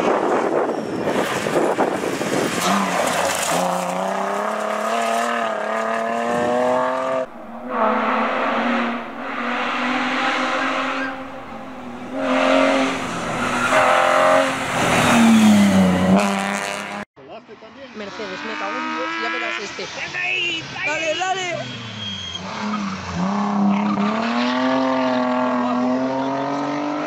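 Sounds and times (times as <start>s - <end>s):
rally car engine at full throttle: 0.0s - 17.0s, 18.0s - 20.0s, 22.0s - 27.0s
tyres on loose gravel: 1.1s - 5.4s
car pulling away: 1.3s - 17.0s.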